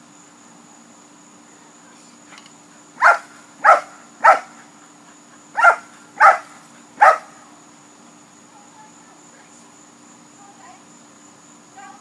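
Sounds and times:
dog barking: 3.0s - 4.6s, 5.6s - 7.4s.

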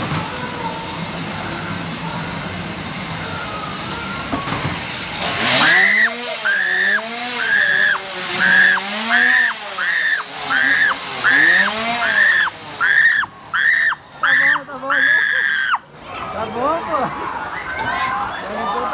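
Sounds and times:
ride car rumbling on track: 0.0s - 18.9s
warbling wail sound effect: 5.6s - 15.8s.

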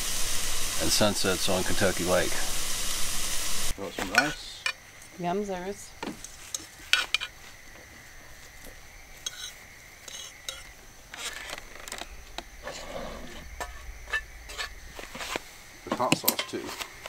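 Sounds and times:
utensils scraping and clinking pots: 4.0s - 4.8s, 6.1s - 7.4s, 9.2s - 17.0s.

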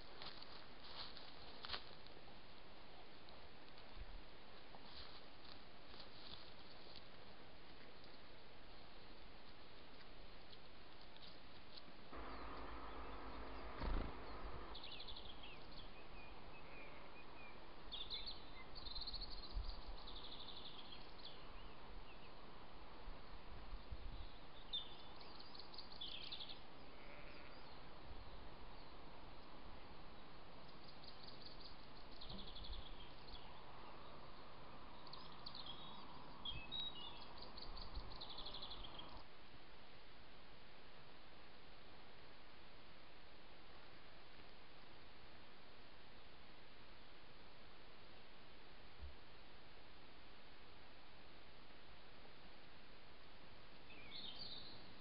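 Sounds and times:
microphone hiss: 0.0s - 55.0s
songbirds trilling: 12.1s - 22.6s, 23.7s - 39.3s.

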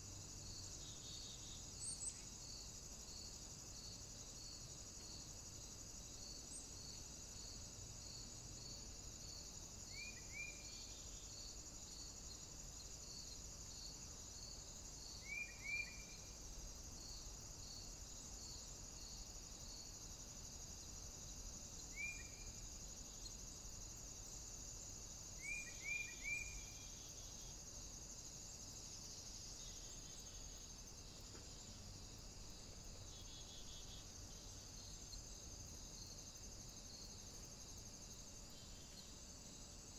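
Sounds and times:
steady high hiss: 0.0s - 39.9s.

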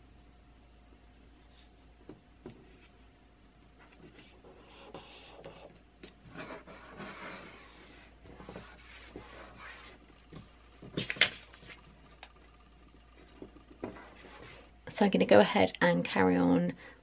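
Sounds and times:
paper rustling and rubbing: 3.9s - 11.9s.

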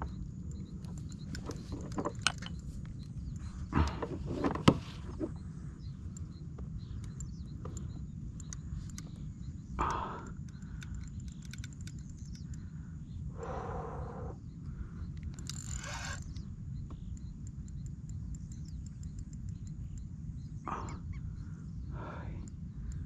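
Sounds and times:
fishing reel clicks and knocks: 0.6s - 3.4s, 7.0s - 12.7s, 15.1s - 20.1s.

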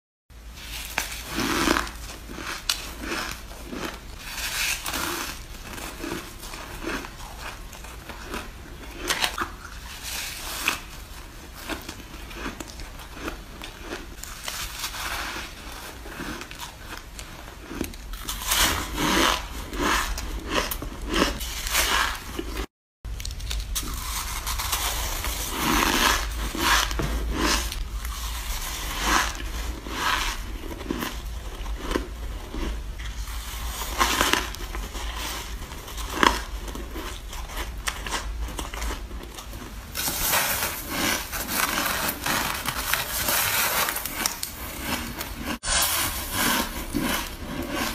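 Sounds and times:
crunchy bites into shaved ice: 0.7s - 11.0s, 11.6s - 47.9s.

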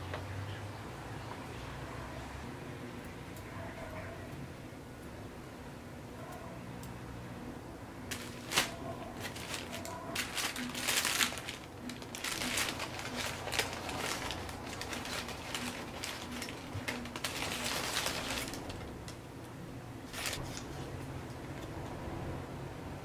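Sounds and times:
plastic wrapping rustling: 8.1s - 19.2s, 20.0s - 21.0s.

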